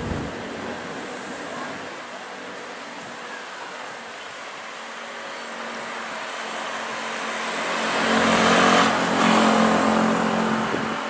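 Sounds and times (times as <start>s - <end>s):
vehicle passing by: 6.7s - 11.0s.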